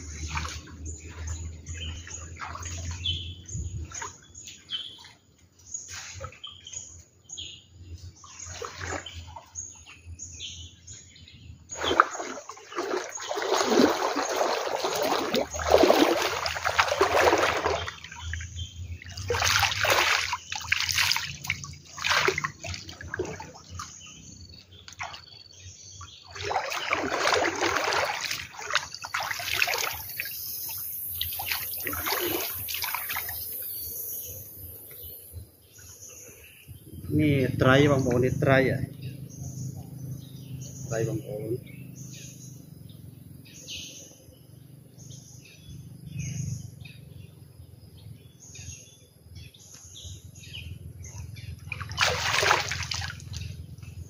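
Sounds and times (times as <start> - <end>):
water splashing and sloshing: 0.0 - 10.1, 11.6 - 34.2, 50.8 - 54.0
bird chirps: 0.0 - 54.0.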